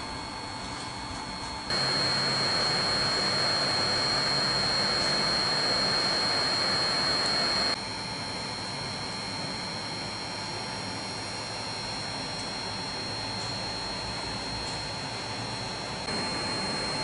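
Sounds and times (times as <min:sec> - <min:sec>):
thin high whine: 0:01.6 - 0:17.0
desk fan air rushing: 0:01.7 - 0:07.8.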